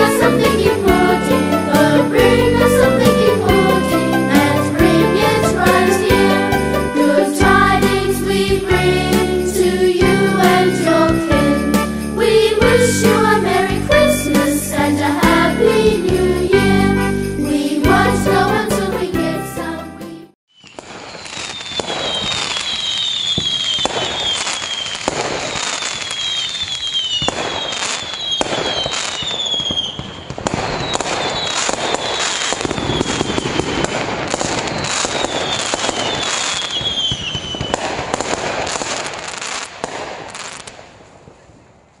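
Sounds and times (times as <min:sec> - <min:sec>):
fireworks crackling and popping: 0:00.0 - 0:13.8, 0:20.5 - 0:42.0
fireworks bangs: 0:00.0 - 0:18.2, 0:20.5 - 0:42.0
falling fireworks whistles: 0:20.5 - 0:41.7.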